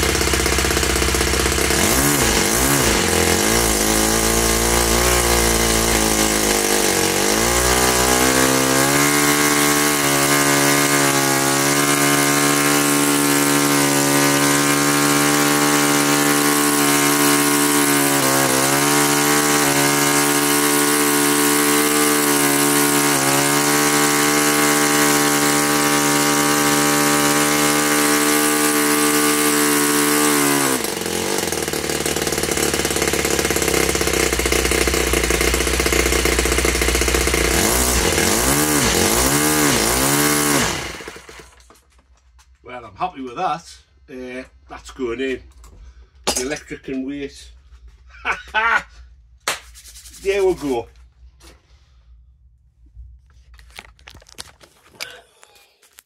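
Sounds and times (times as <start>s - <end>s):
small model engine running: 0.0s - 41.7s.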